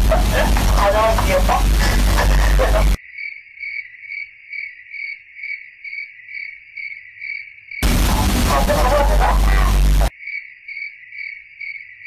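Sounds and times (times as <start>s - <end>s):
loud bass-heavy sound: 0.0s - 3.0s, 7.8s - 10.1s
cricket chirping: 3.0s - 7.8s, 10.1s - 12.0s.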